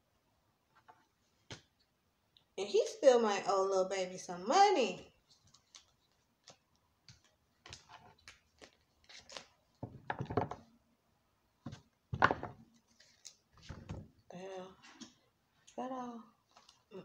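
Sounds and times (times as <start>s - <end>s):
cards being shuffled: 5.2s - 10.6s.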